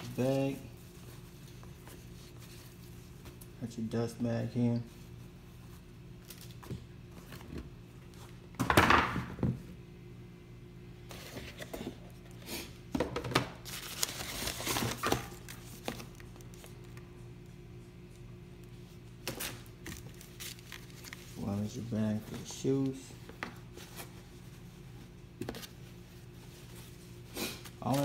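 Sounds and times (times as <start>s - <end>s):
cardboard and paper rustling: 13.6s - 17.0s, 19.2s - 28.0s.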